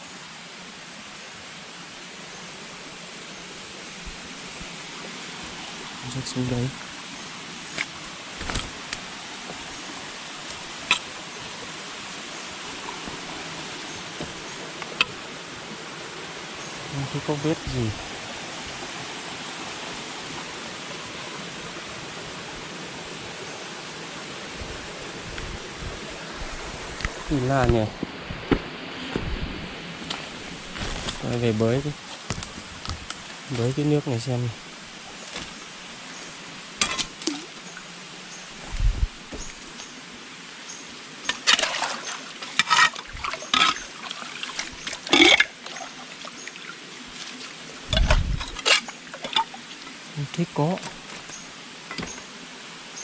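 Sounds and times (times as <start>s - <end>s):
flowing stream water: 0.0s - 53.0s
hands splashing in stream water: 41.3s - 47.6s.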